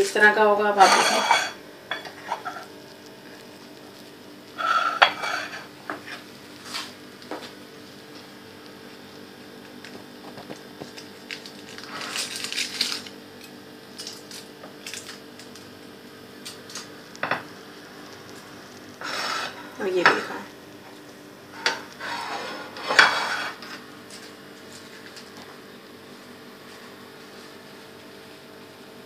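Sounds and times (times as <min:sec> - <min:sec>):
faint steady hum: 0:00.0 - 0:29.0
cutlery clinking on a plate: 0:00.8 - 0:02.6.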